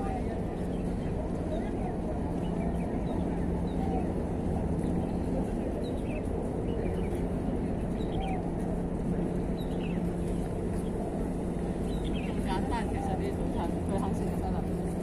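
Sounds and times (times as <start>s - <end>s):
birds chirping: 0.0s - 14.9s
faint hum: 0.0s - 15.0s
low outdoor rumble: 0.0s - 15.0s.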